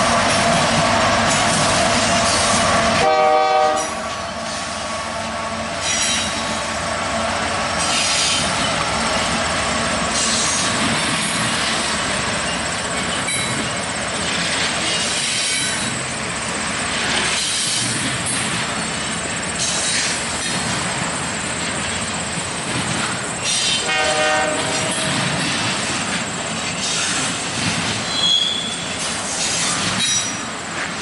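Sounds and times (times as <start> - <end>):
freight train rolling past: 0.0 - 31.0
wheel flanges squealing: 5.8 - 6.6, 7.8 - 9.4, 10.1 - 16.2, 28.0 - 30.6.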